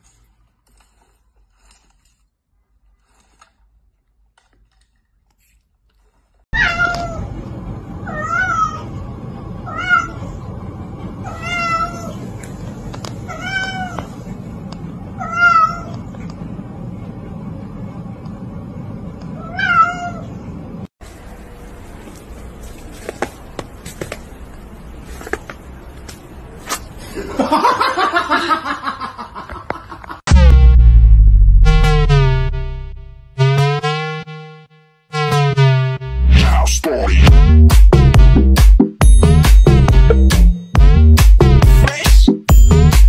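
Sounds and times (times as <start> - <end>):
low background hum: 0.0 - 33.3
cat meowing: 6.6 - 7.3, 8.0 - 8.9, 9.7 - 10.4, 11.3 - 12.2, 13.3 - 14.1, 15.2 - 15.9, 19.4 - 20.3.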